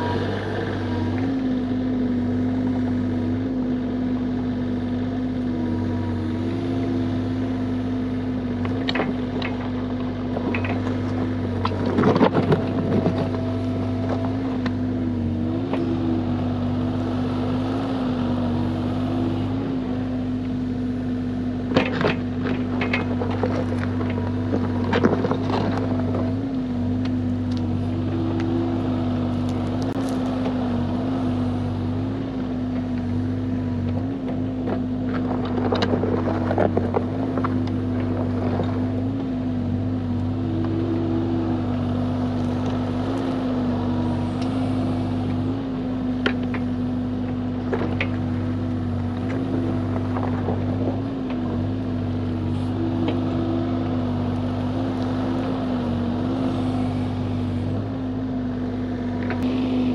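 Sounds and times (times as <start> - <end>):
diesel engine running: 0.0 - 59.9.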